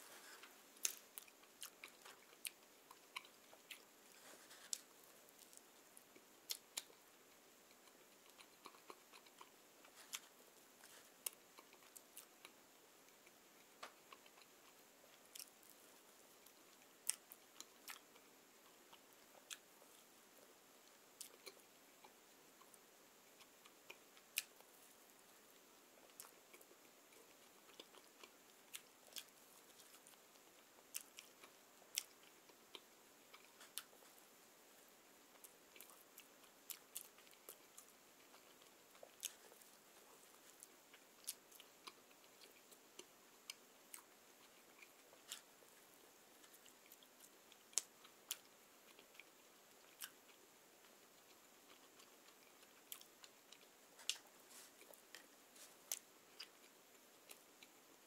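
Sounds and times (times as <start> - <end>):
chewing and biting bread: 0.2 - 15.8, 25.5 - 34.2.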